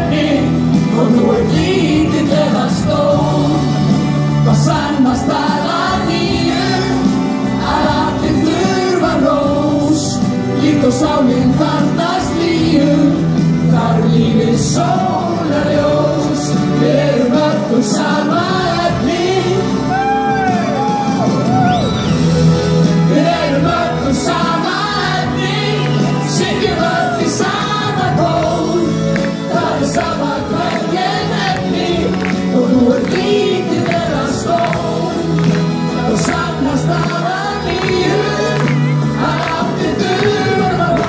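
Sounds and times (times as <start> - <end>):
amplified backing music: 0.0 - 41.0
group singing pop song: 0.0 - 41.0.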